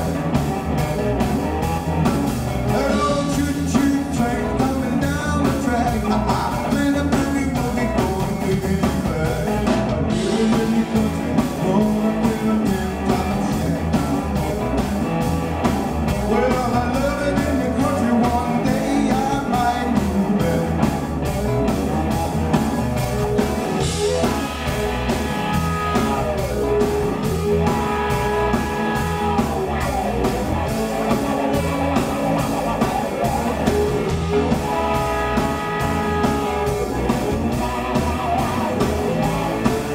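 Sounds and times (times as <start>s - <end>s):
bass: 0.0s - 39.9s
drums beating: 0.0s - 39.9s
electric guitar: 0.0s - 39.9s
man singing: 2.6s - 14.7s, 16.1s - 21.1s, 23.8s - 25.1s.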